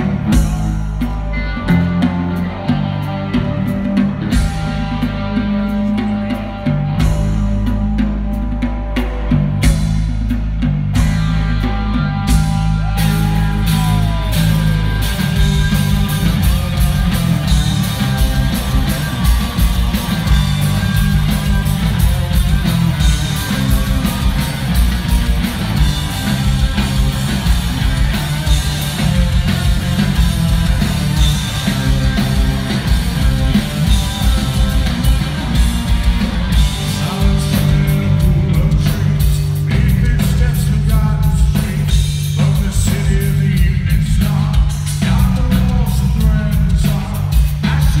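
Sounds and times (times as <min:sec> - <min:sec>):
bass: 0:00.0 - 0:48.0
distorted electric guitar: 0:00.0 - 0:48.0
drums: 0:00.0 - 0:48.0
lead vocal singing: 0:11.6 - 0:21.6, 0:36.5 - 0:48.0.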